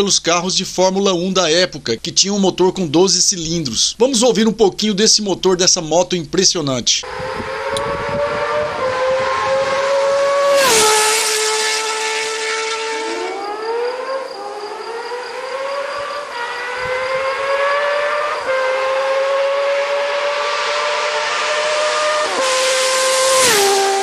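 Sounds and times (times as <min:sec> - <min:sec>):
motorcycle engine revving: 0:07.0 - 0:24.0.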